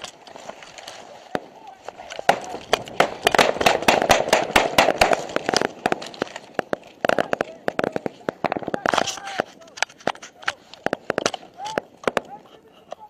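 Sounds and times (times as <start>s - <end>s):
small-arms gunfire: 2.2s - 9.1s.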